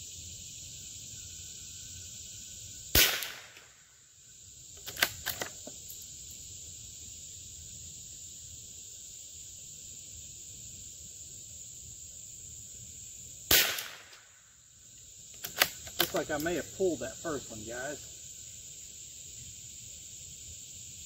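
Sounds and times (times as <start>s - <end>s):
insect hiss: 0.0s - 21.0s
rifle shot: 2.9s - 3.7s, 13.5s - 14.4s
rifle bolt clicks: 4.8s - 5.6s, 15.4s - 16.5s.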